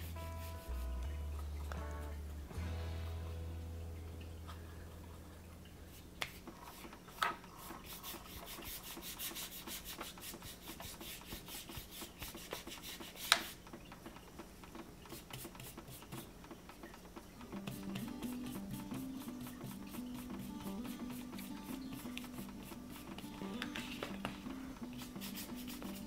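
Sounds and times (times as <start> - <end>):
paintbrush scrubbing on paper: 0.0 - 1.0, 7.5 - 13.6, 15.1 - 16.3, 17.6 - 26.0
brush tapping: 6.2 - 26.0.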